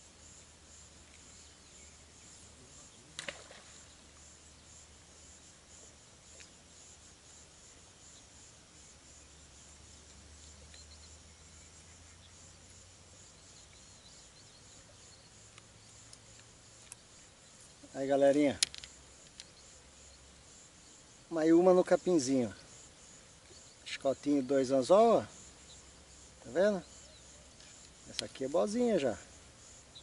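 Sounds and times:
high-pitched insect chirring: 10.4 - 30.0.

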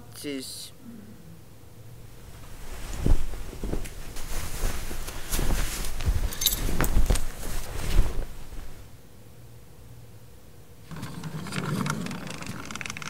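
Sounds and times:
costume rustling: 2.0 - 9.0
metallic jingle: 6.3 - 6.9.

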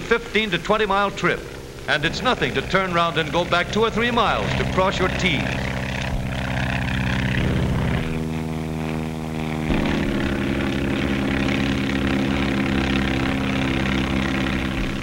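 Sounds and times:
propeller plane engine droning: 0.0 - 15.0.

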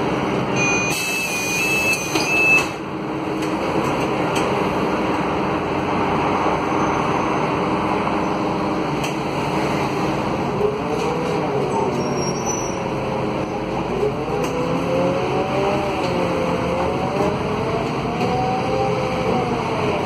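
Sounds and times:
bus diesel engine drone: 0.0 - 20.0
electronic beeper tones: 0.6 - 2.7.

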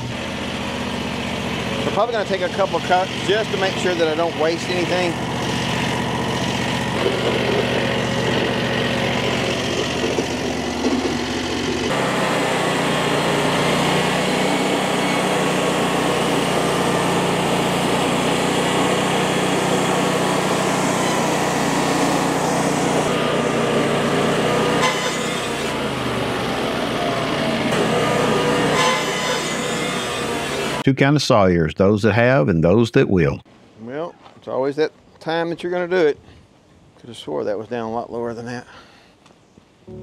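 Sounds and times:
band saw cutting log: 0.0 - 30.8
engine running: 0.0 - 30.8.

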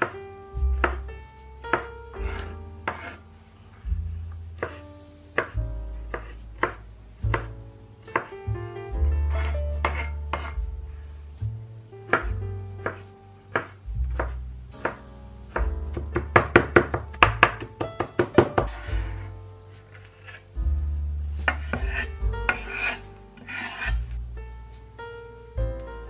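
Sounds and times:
background music with bass: 0.0 - 26.0
knife chopping on cutting board: 0.8 - 1.1, 1.7 - 3.2, 5.4 - 7.5, 12.1 - 15.0, 15.6 - 19.1, 21.5 - 24.0.

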